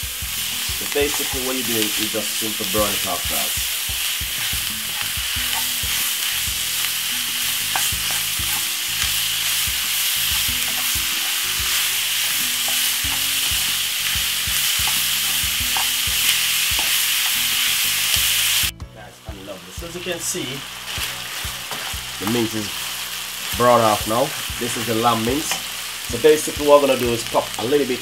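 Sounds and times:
meat sizzling in a frying pan: 0.0s - 18.7s, 19.4s - 28.0s
wooden spoon scraping a pan: 2.9s - 17.7s, 20.2s - 23.1s.

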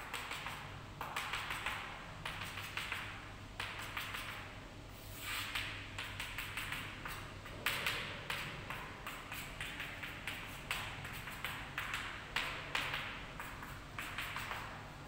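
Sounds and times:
chalk tapping on blackboard: 0.0s - 14.8s
chalk scraping on blackboard: 5.0s - 12.5s, 13.4s - 14.7s.

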